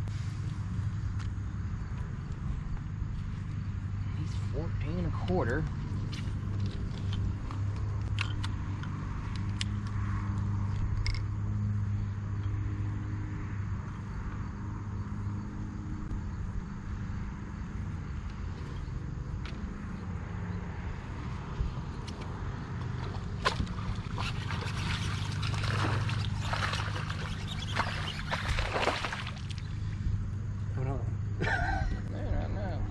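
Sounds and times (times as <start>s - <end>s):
electric trolling motor humming: 0.0s - 30.7s
fish thrashing in water: 23.0s - 29.8s.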